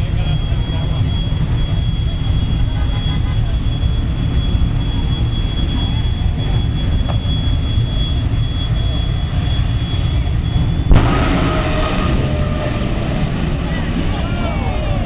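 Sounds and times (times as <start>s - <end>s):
turbine engine running: 0.0s - 15.0s.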